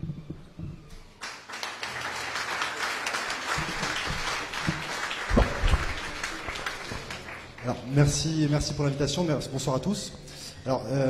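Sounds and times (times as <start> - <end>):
audience applauding: 1.2 - 8.7.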